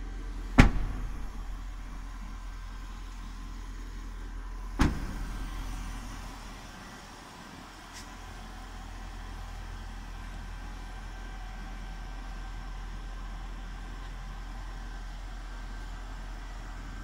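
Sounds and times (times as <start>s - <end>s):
steady low hum: 0.0s - 16.6s
car door shutting with a thud: 0.5s - 2.2s, 4.8s - 6.0s.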